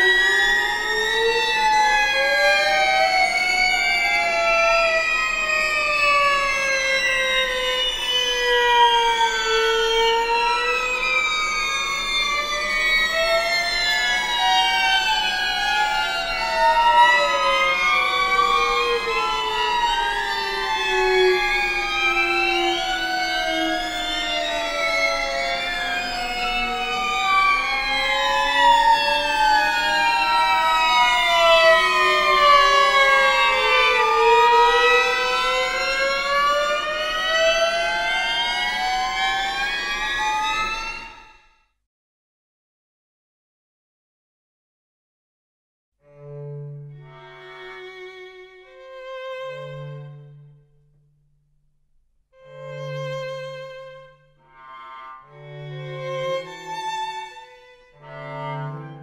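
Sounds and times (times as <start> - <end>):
string quartet gliding held tones: 52.4 - 59.0.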